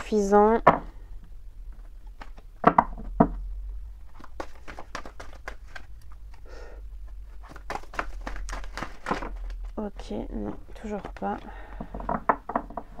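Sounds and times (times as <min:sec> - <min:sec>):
low steady hum: 0:00.0 - 0:13.0
cards being shuffled: 0:01.8 - 0:02.5, 0:04.0 - 0:06.5, 0:07.1 - 0:11.6.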